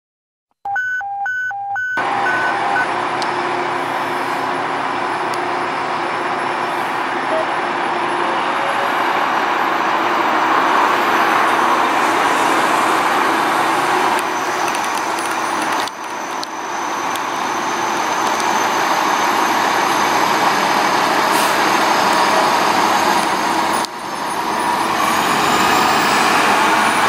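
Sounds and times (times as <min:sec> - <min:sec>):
short electronic beeps: 0:00.7 - 0:02.9
fire engine idling: 0:02.0 - 0:09.8
constant rushing noise: 0:02.1 - 0:21.1.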